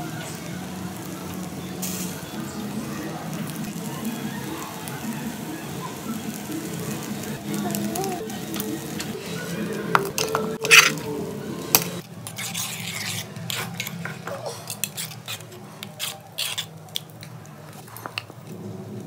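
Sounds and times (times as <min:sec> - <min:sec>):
metal spoon scraping a pot: 0:10.0 - 0:11.1, 0:11.7 - 0:18.3.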